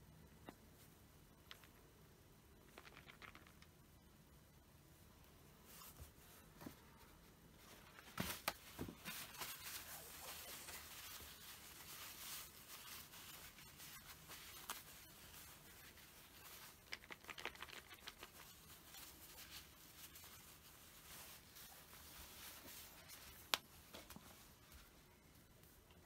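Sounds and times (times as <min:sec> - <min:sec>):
paper tissue rustling: 0:05.6 - 0:25.1.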